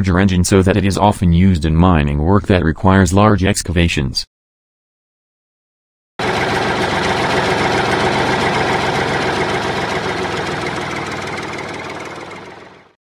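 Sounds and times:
engine running steadily: 0:06.2 - 0:12.9.

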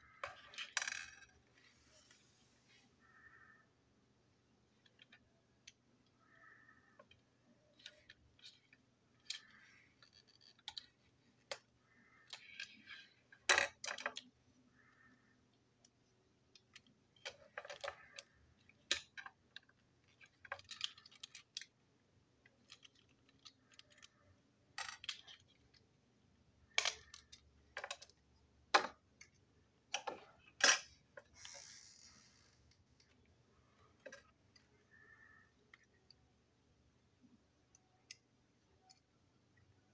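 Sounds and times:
small parts clicking on tabletop: 0:07.0 - 0:15.0, 0:15.8 - 0:21.8, 0:22.4 - 0:25.8, 0:26.7 - 0:33.3.

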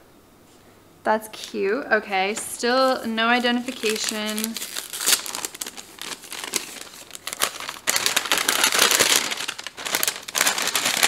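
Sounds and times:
paper packet crinkling: 0:02.6 - 0:11.0.

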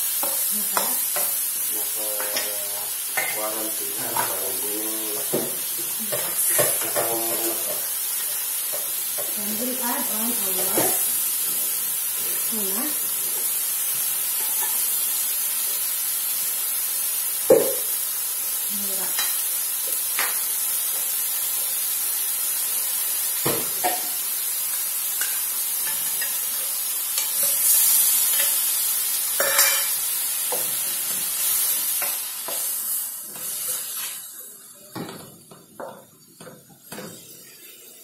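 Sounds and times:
food sizzling in oil: 0:00.0 - 0:38.0.

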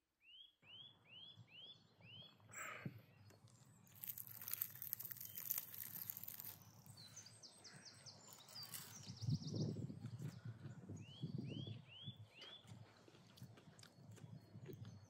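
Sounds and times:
small birds chirping: 0:00.2 - 0:15.0
crispy fish crust crackling: 0:03.6 - 0:07.0, 0:08.3 - 0:09.0.

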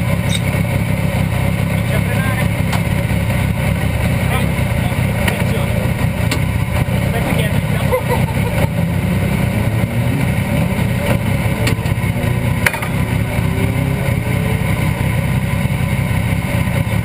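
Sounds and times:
motorcycle engine idling: 0:00.0 - 0:17.0
sharp click: 0:00.3 - 0:00.5.

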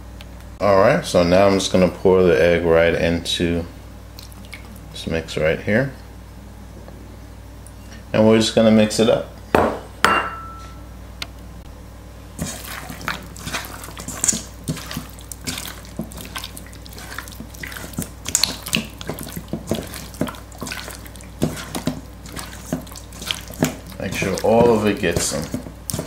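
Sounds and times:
hand squelching raw chicken: 0:12.4 - 0:26.0.

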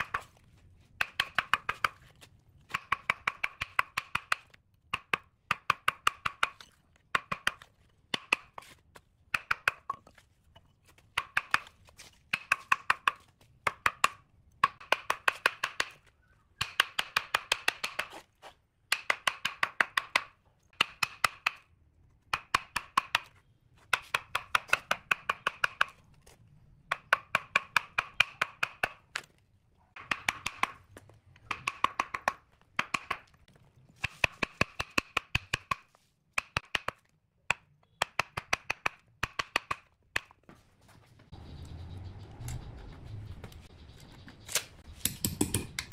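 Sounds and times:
chisel tapping on log: 0:01.0 - 0:02.0, 0:02.7 - 0:08.6, 0:09.3 - 0:11.7, 0:12.3 - 0:18.1, 0:18.9 - 0:21.6, 0:22.2 - 0:26.0, 0:26.9 - 0:29.3, 0:30.0 - 0:33.4, 0:34.0 - 0:40.4, 0:45.0 - 0:45.9.

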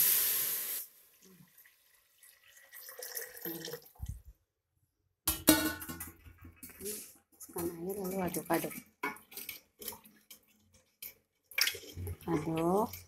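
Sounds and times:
water hissing in hot oil: 0:00.0 - 0:01.6
water pouring: 0:00.0 - 0:04.4, 0:06.1 - 0:13.0.

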